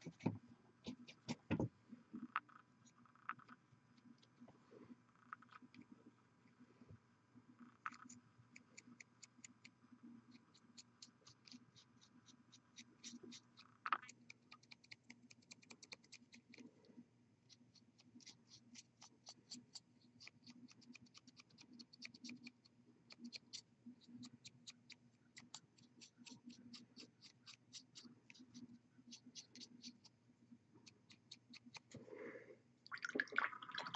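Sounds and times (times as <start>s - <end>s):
faint rapid clicking: 7.6s - 16.8s.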